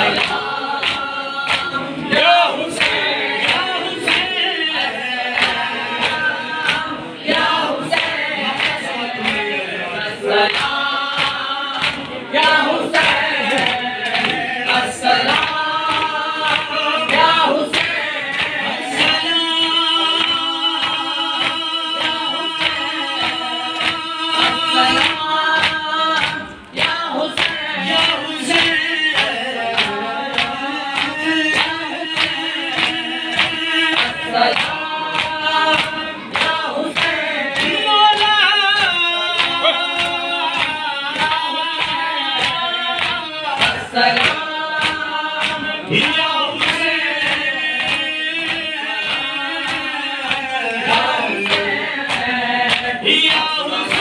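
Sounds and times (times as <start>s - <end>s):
men chanting in unison: 0.0s - 54.0s
hands slapping chests: 0.1s - 1.9s, 10.4s - 19.2s, 20.1s - 38.3s.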